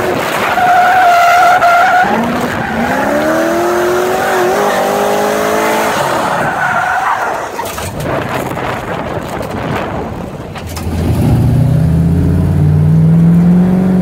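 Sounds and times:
car engine revving: 0.0s - 10.1s, 10.7s - 14.0s
tyres squealing and sliding: 0.4s - 5.1s, 5.9s - 8.0s.

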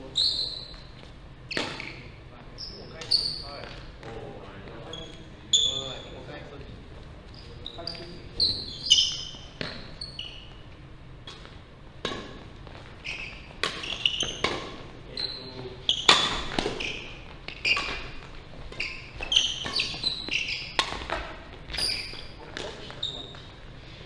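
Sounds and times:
sneakers squeaking on wooden floor: 0.0s - 6.3s, 6.9s - 23.7s
racket hitting shuttlecock: 9.0s - 10.0s, 11.2s - 14.9s, 16.0s - 22.9s.

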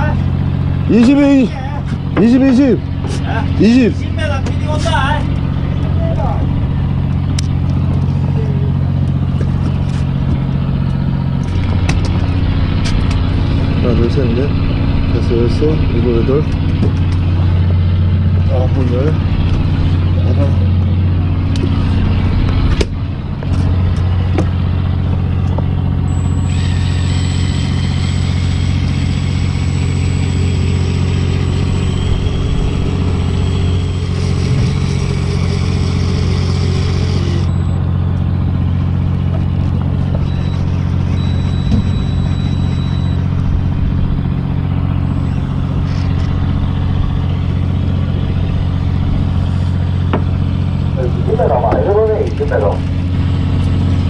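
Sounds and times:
boat engine humming: 0.0s - 54.0s.

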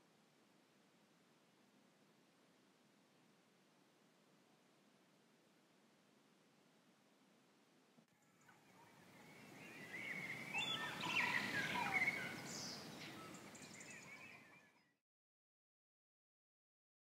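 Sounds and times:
steady outdoor hiss: 0.0s - 14.8s
birds chirping and singing: 8.4s - 14.9s.

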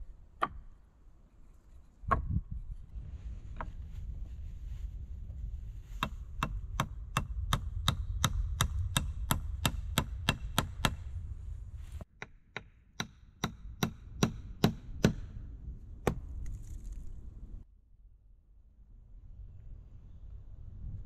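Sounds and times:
hatchet knocking on wood: 6.0s - 11.0s, 12.2s - 15.3s.

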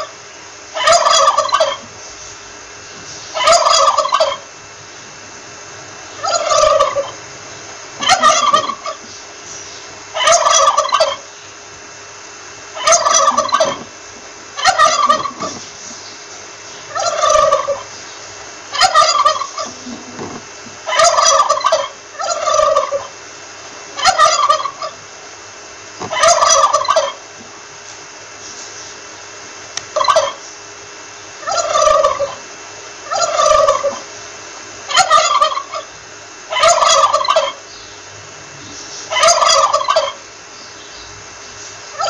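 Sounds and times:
turkey gobbling: 0.0s - 2.0s, 3.3s - 4.5s, 6.1s - 9.1s, 10.1s - 11.3s, 12.7s - 15.9s, 16.8s - 18.0s, 18.7s - 23.2s, 23.9s - 25.1s, 26.0s - 27.3s, 29.9s - 30.4s, 31.4s - 34.2s, 34.8s - 37.7s, 38.6s - 40.3s.

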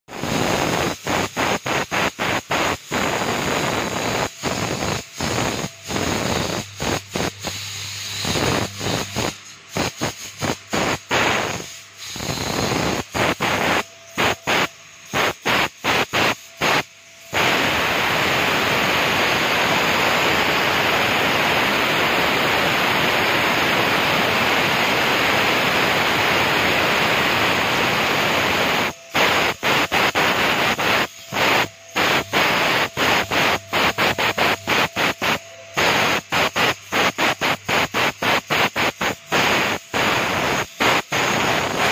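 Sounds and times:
router cutting board hissing: 0.1s - 41.9s
faint high spindle whine: 2.6s - 41.9s.

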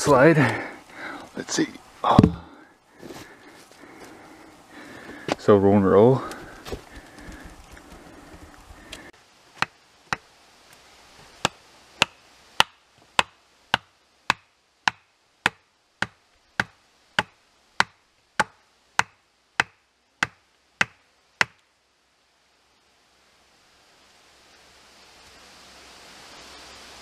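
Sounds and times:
axe knocking on wooden stake: 2.1s - 2.4s, 9.6s - 10.2s, 11.4s - 21.6s.

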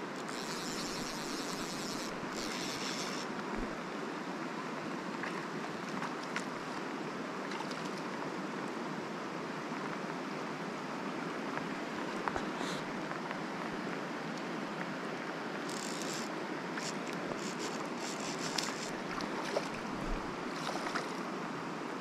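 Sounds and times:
river water over gravel: 0.0s - 9.0s, 11.3s - 21.9s
scratchy rustle: 0.3s - 3.3s, 15.7s - 19.0s.

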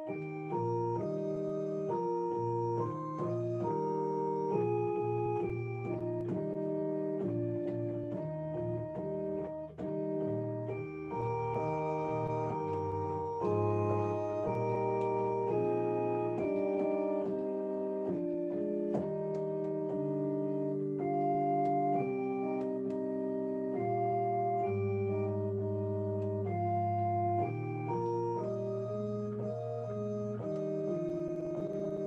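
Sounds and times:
organ chords: 0.0s - 32.0s.

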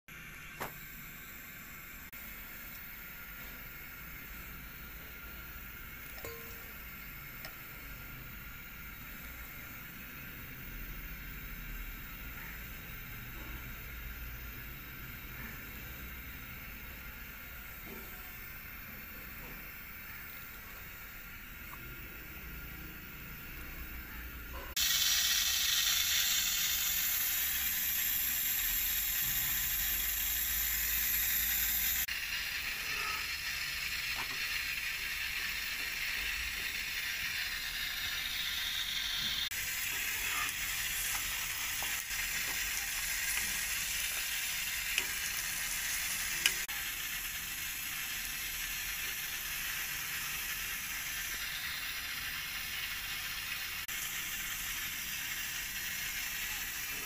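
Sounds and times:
flatbread sizzling on griddle: 24.6s - 57.0s.

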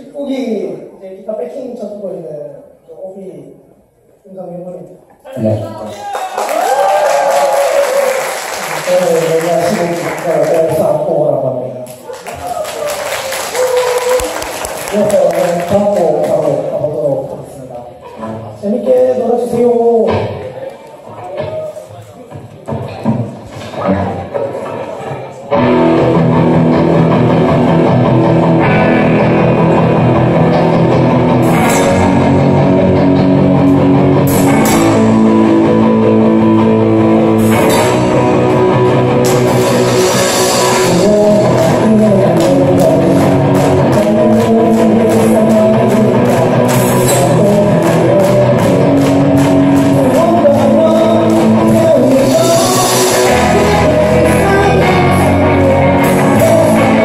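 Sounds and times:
live rock band playing: 25.5s - 57.0s.

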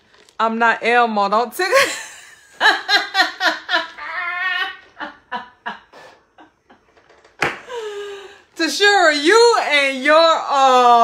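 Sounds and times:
woman laughing hard: 1.8s - 6.9s.

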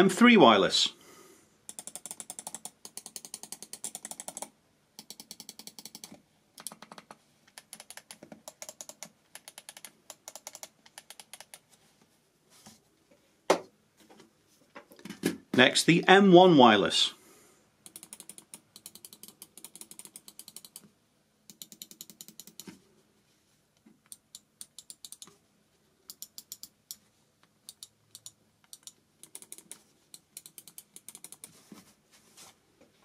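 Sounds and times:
mouse buttons clicking: 1.7s - 11.7s, 26.1s - 27.0s, 27.7s - 31.5s.

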